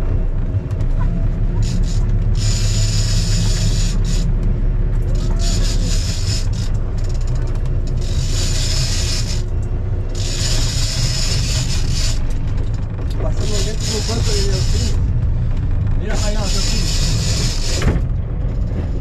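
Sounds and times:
boat engine rumble: 0:00.0 - 0:19.0
fishing reel buzzing: 0:01.6 - 0:04.3, 0:05.1 - 0:12.6, 0:13.4 - 0:15.0, 0:16.2 - 0:18.0.

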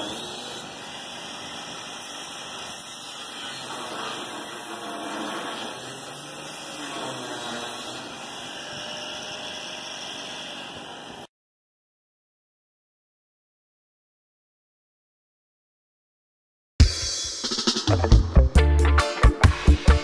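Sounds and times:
angle grinder grinding steel: 0:00.0 - 0:11.3.

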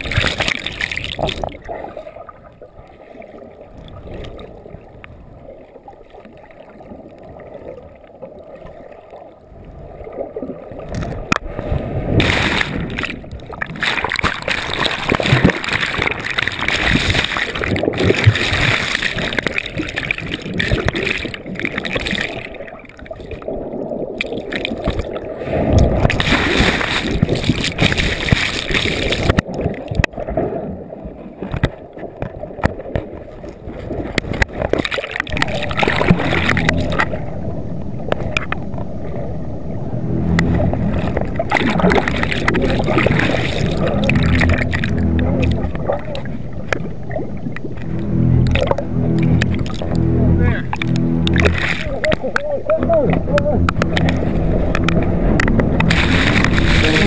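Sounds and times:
underwater gurgling and bubbling: 0:00.0 - 0:57.0.

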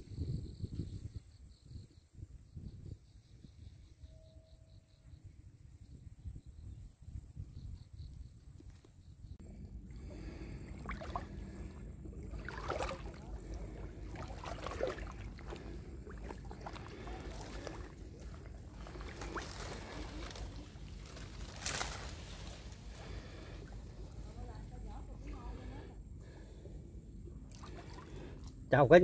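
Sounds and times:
shallow water sloshing and splashing: 0:09.5 - 0:26.6, 0:27.3 - 0:28.7
loud water splash: 0:10.7 - 0:11.5, 0:12.2 - 0:18.0.

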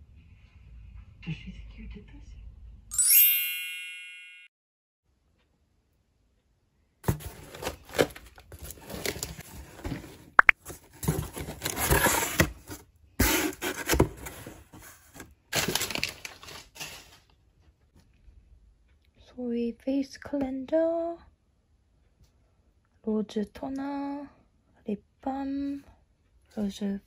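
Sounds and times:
cardboard flaps scraping: 0:07.0 - 0:16.1
packing paper rustling: 0:07.0 - 0:17.3.

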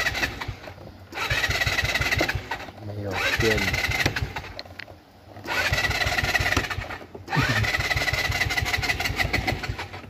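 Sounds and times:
scooter engine revving: 0:00.0 - 0:04.6, 0:05.4 - 0:10.0.

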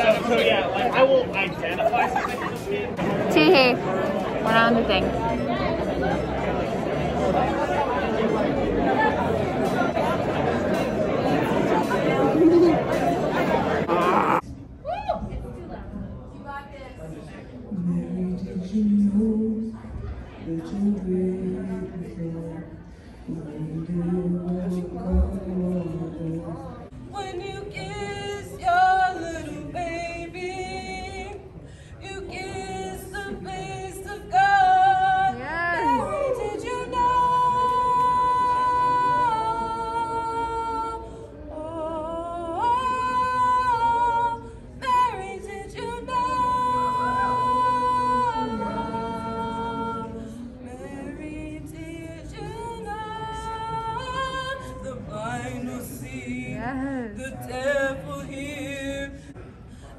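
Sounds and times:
person singing karaoke: 0:17.7 - 0:59.9.

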